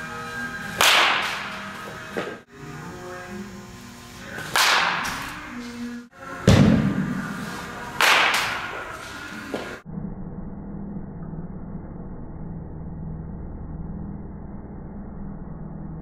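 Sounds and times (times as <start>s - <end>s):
baseball bat cracking balls: 0.7s - 2.4s, 4.3s - 5.4s, 6.4s - 9.8s.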